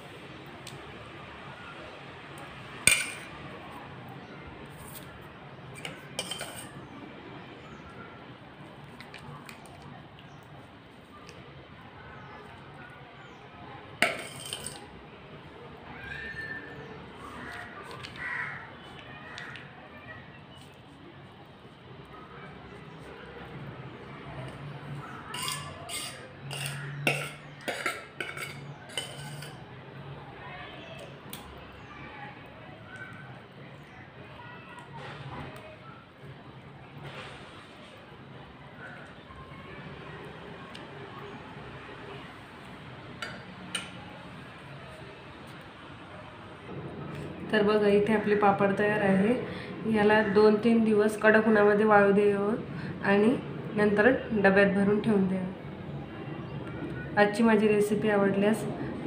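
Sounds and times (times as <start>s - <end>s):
steel spoon clinking: 2.9s - 3.3s, 5.8s - 6.8s, 14.0s - 14.9s, 25.3s - 29.6s.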